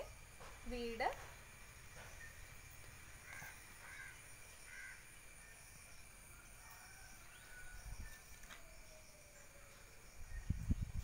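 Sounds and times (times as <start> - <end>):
faint crow caws: 3.1 - 5.2.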